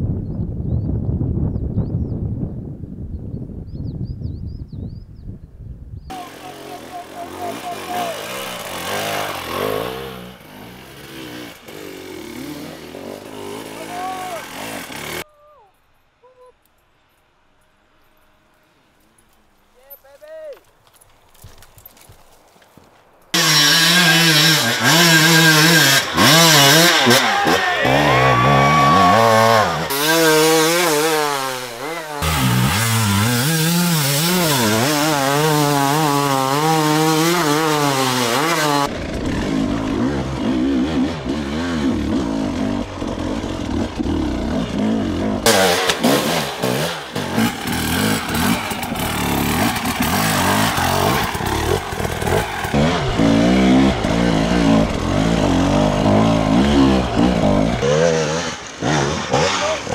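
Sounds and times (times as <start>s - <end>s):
motorcycle engines revving: 6.1s - 15.3s, 23.3s - 59.9s.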